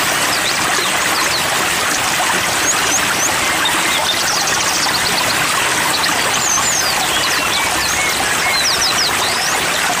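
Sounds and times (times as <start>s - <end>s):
flowing water rushing: 0.0s - 10.0s
songbirds chirping and twittering: 0.0s - 10.0s.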